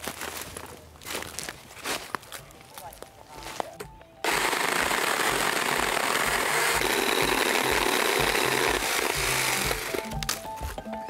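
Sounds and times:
chainsaw cutting branch: 4.2 - 10.4.

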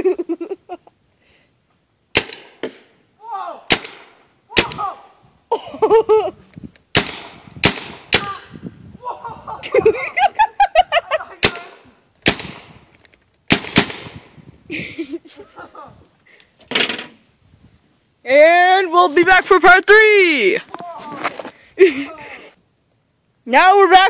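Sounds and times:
paintball marker shots: 2.1 - 2.9, 3.7 - 4.8, 6.9 - 8.3, 11.4 - 12.8, 13.5 - 14.2.

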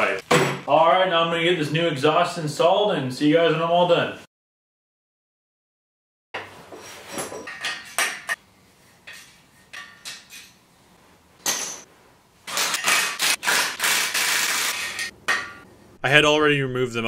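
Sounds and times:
metal clinks and knocks: 11.4 - 11.9.

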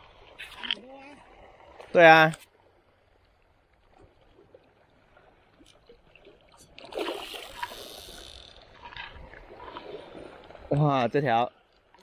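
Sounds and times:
fish thrashing and splashing: 6.3 - 10.0
faint small ticks: 7.5 - 9.8.

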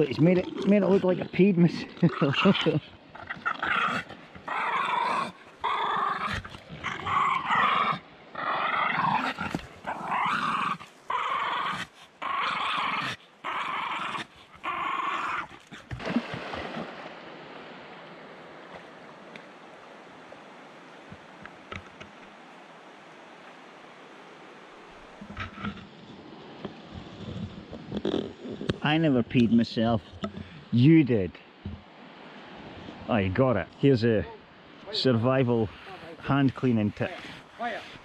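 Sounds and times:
river rushing: 15.9 - 26.6.

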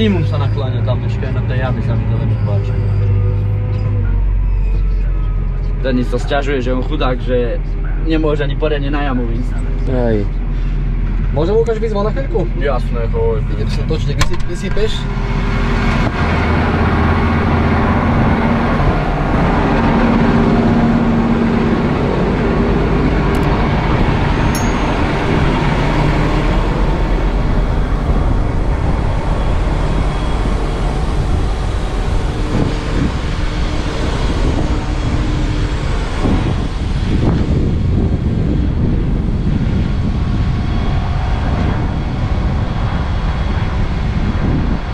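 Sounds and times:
tractor diesel engine running: 14.9 - 44.5.

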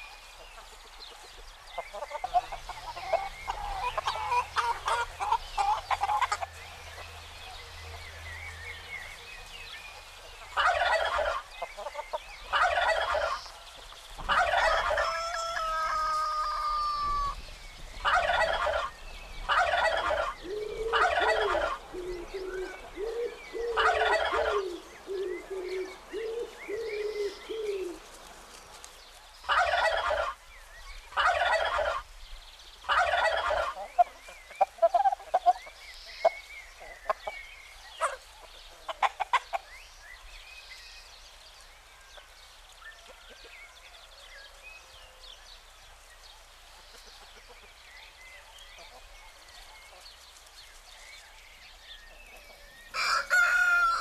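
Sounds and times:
turkeys gobbling: 1.8 - 6.6, 10.3 - 13.6, 14.2 - 17.4, 18.0 - 18.9, 19.5 - 28.1, 29.5 - 30.4, 31.1 - 32.1, 32.9 - 37.4, 38.0 - 39.7, 52.4 - 54.0
rooster crowing: 14.3 - 17.4, 52.9 - 54.0.

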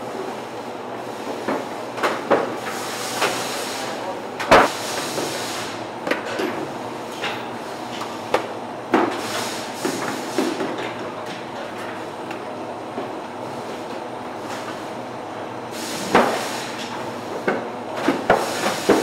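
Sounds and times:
conveyor machinery clatter: 0.0 - 19.0.

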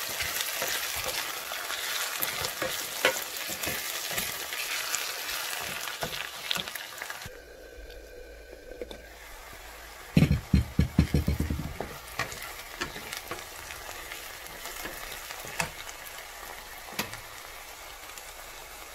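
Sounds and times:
onions sizzling in oil: 0.0 - 18.9
wooden spoon knocking on pan: 10.2 - 13.4.

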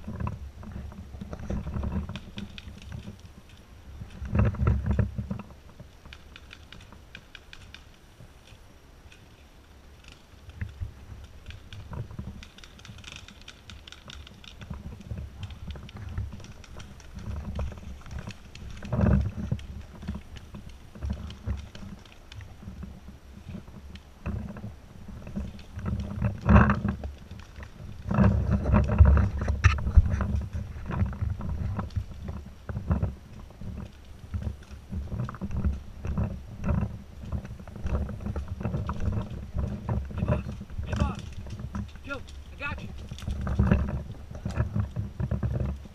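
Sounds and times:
footsteps on dirt trail: 10.0 - 45.9
microphone handling noise: 14.6 - 45.9.

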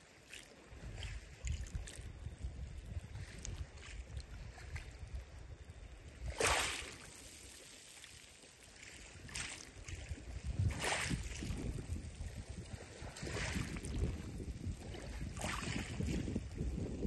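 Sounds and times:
waves hissing through pebbles: 5.5 - 17.0.

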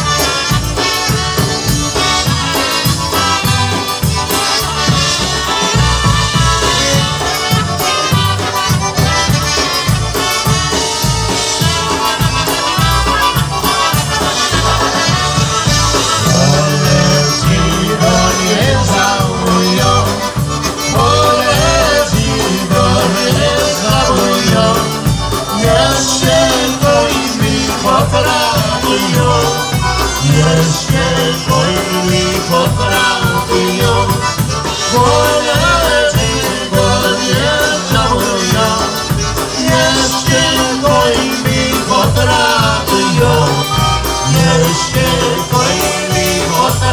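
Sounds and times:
accordion: 0.0 - 46.9
polka band playing: 0.0 - 46.9
trumpets: 0.0 - 46.9
people singing into microphones: 14.4 - 46.9.

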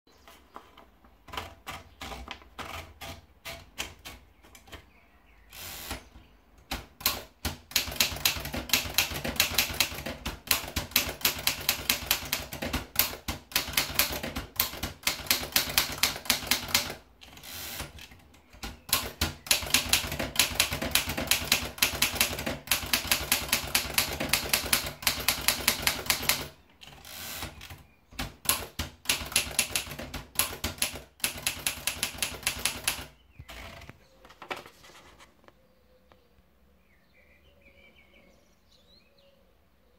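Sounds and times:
typewriter keystrokes: 6.6 - 34.0.

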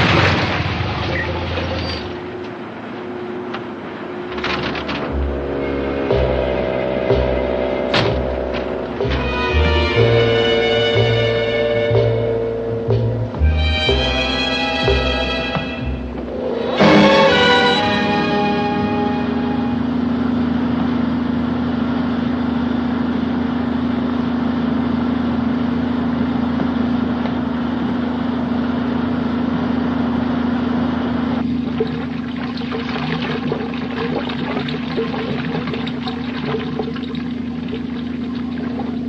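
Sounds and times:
steady machine hum: 2.0 - 39.0
rushing water-like noise: 31.5 - 39.0.

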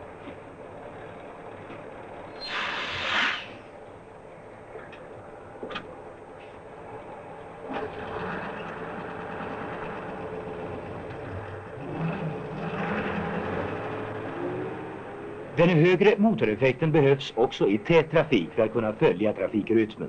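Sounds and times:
diesel truck engine running: 3.6 - 20.0.

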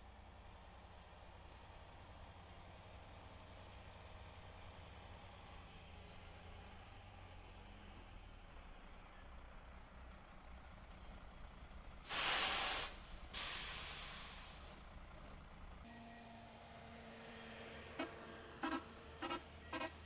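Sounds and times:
air brakes hissing: 12.0 - 14.9.

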